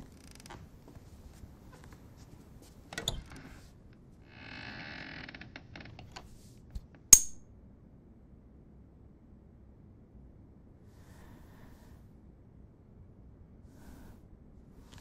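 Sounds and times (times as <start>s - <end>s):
rattly creak: 0.1s - 0.6s, 3.0s - 3.6s, 4.2s - 6.2s.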